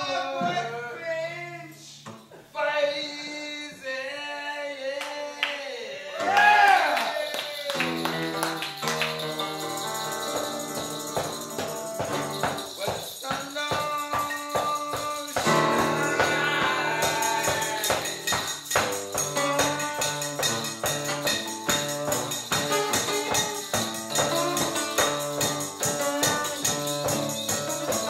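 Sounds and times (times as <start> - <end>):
fast jingling beat: 7.5 - 28.0
acoustic guitar music: 7.7 - 28.0.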